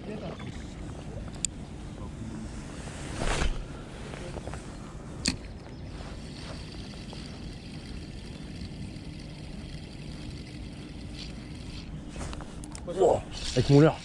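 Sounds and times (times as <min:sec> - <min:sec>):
low wind: 0:00.0 - 0:14.0
fishing reel whirring: 0:06.1 - 0:14.0.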